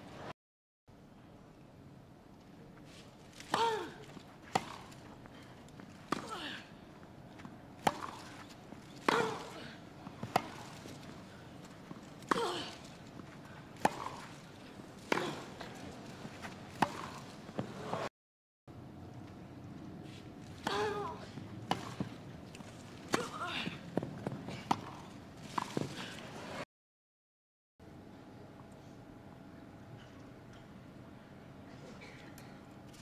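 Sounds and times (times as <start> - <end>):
racket hitting tennis ball: 3.4 - 5.1, 7.4 - 18.1, 21.6 - 23.4, 24.0 - 26.1.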